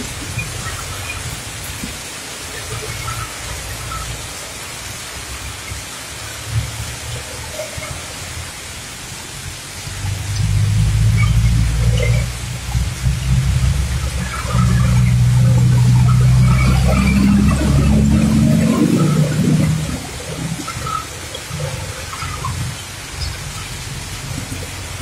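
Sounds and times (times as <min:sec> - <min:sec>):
heavy rain pouring: 0:00.0 - 0:25.0
low rumble: 0:10.0 - 0:21.0.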